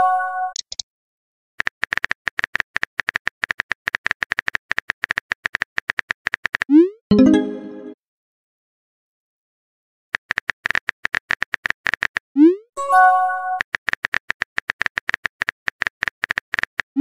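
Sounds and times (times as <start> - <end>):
brief tone: 12.8 - 13.6.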